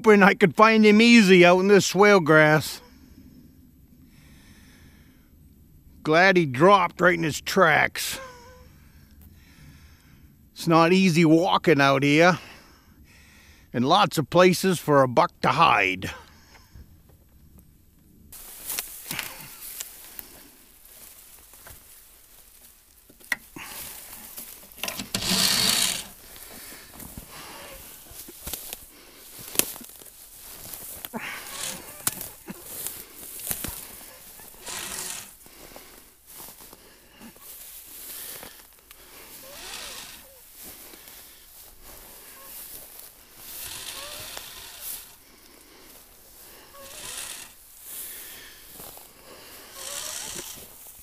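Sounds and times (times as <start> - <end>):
dry grass rustling: 17.0 - 51.0.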